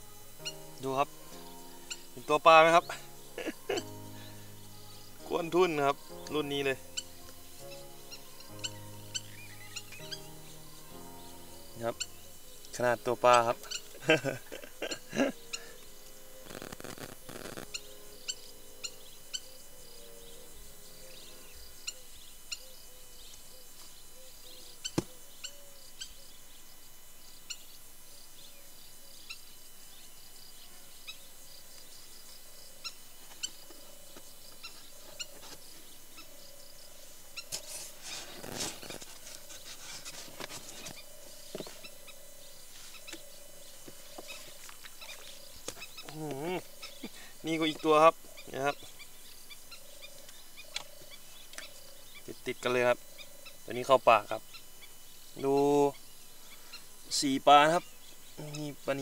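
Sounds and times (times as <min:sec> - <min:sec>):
faint wavering low tone: 0:00.0 - 0:37.5
small birds chirping: 0:00.0 - 0:59.0.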